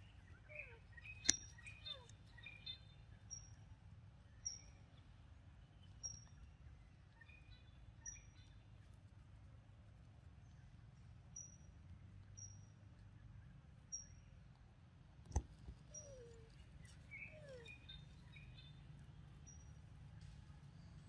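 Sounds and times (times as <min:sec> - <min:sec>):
faint bird chirps: 0:00.0 - 0:03.7, 0:15.8 - 0:18.8.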